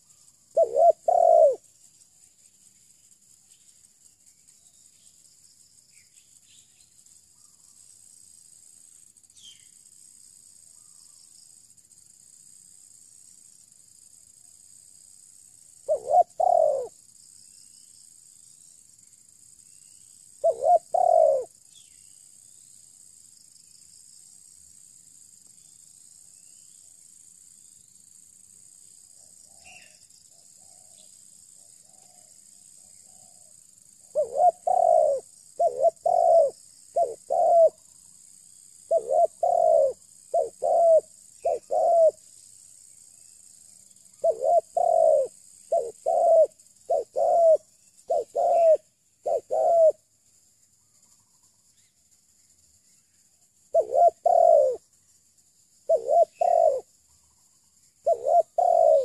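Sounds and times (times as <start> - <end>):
dove cooing: 0.0 - 1.7, 15.8 - 17.0, 20.4 - 21.5, 34.1 - 37.8, 38.9 - 42.2, 44.2 - 50.0, 53.7 - 54.8, 55.9 - 56.9, 58.0 - 59.0
faint high insect hiss: 0.0 - 59.0.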